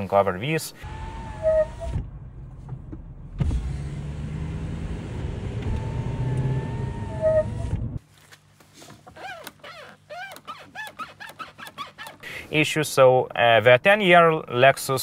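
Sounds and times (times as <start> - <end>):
road and drivetrain noise: 0.7 - 12.4
brake squeak: 0.8 - 2.1, 5.7 - 8.0, 9.0 - 12.3.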